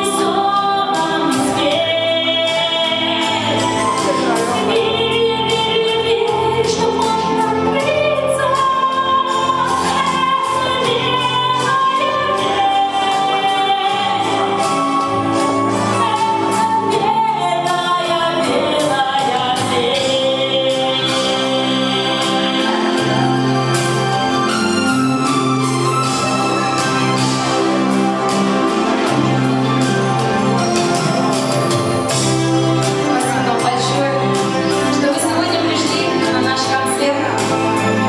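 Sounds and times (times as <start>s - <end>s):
woman singing into microphone: 0.0s - 24.6s, 33.1s - 38.0s
backing music with steady beat: 0.0s - 38.0s.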